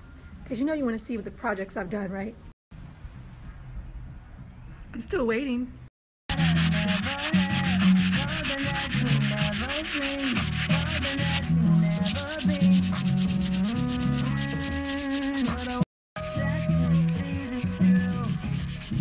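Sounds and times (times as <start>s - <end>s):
sandpaper rubbing wood: 6.3s - 15.8s, 16.4s - 19.0s.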